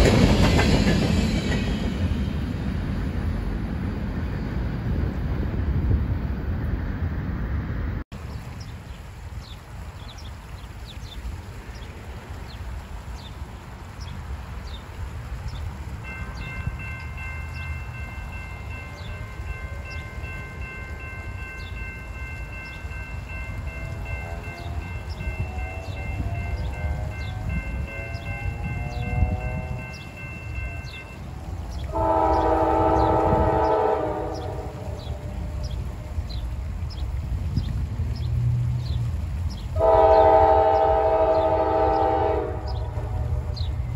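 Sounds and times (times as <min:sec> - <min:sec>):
crossing warning bell ringing: 0:16.0 - 0:35.6
train air horn blast: 0:31.9 - 0:35.7, 0:39.8 - 0:43.7.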